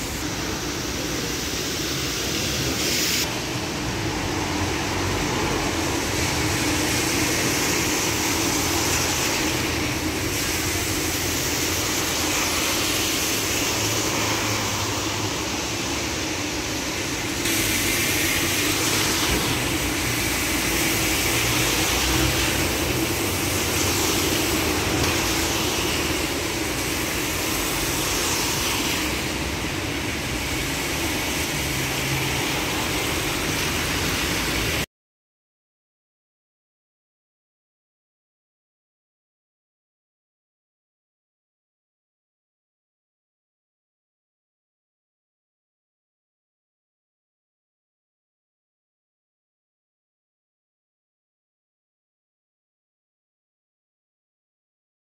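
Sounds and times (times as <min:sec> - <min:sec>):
buses and cars passing: 0:00.0 - 0:34.9
tyres hissing on wet road: 0:00.0 - 0:34.9.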